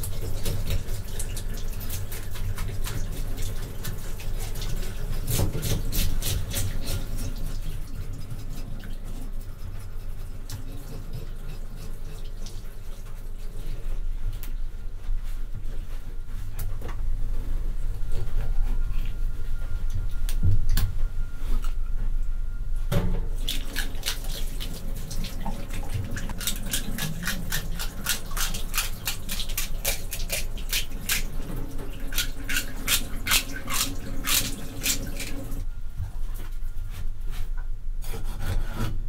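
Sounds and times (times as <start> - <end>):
tap water pouring and splashing: 0.0 - 13.3, 23.4 - 26.8
skewers scrubbing scratchily: 23.5 - 35.6.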